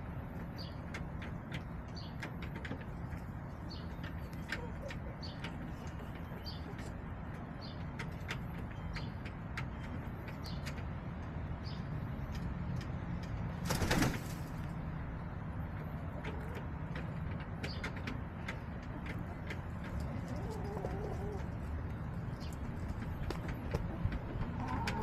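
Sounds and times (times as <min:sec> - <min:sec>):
hens clucking: 0:00.3 - 0:10.8, 0:15.6 - 0:25.0.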